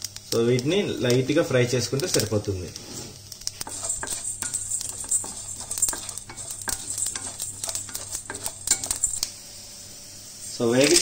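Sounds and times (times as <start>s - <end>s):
spices stirred in metal pan: 0.0s - 11.0s.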